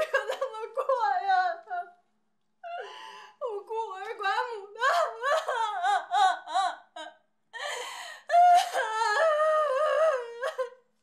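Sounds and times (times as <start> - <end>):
woman wailing and sobbing: 4.5 - 10.8.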